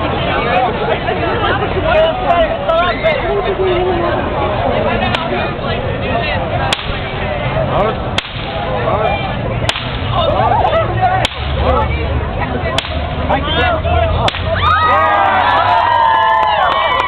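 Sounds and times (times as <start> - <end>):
crowd chatter: 0.0 - 17.0
whip cracking: 6.7 - 7.1, 8.2 - 8.7, 9.6 - 10.2, 11.2 - 11.6, 12.8 - 13.2, 14.2 - 14.6.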